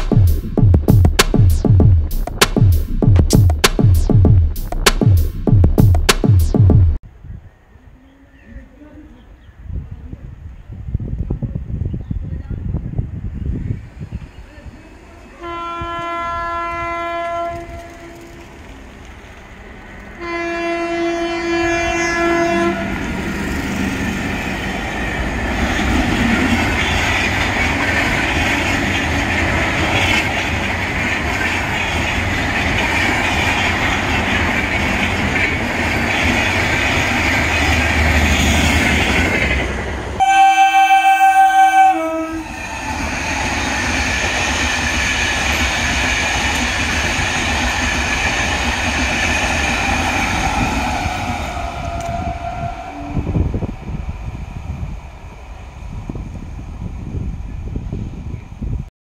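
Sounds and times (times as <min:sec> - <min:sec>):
low pulsing horn blast: 0:15.4 - 0:18.5, 0:20.2 - 0:23.2, 0:40.2 - 0:42.5
train horn blasts: 0:15.4 - 0:18.5, 0:20.2 - 0:23.2, 0:40.2 - 0:42.6
train wheels on rails: 0:15.9 - 0:20.6, 0:22.8 - 0:40.5, 0:42.4 - 0:58.8.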